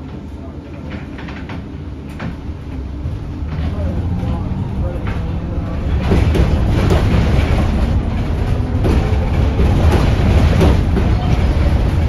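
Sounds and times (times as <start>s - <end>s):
knocks and rattles: 5.0s - 12.0s.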